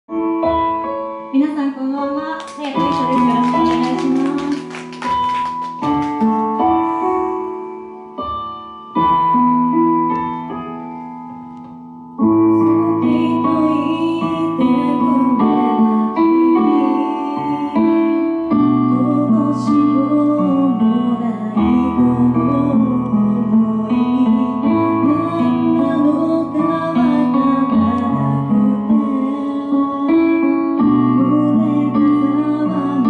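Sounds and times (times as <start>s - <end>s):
piano chords: 0.1s - 33.0s
applause: 2.4s - 6.7s
woman singing a slow ballad: 12.3s - 33.0s.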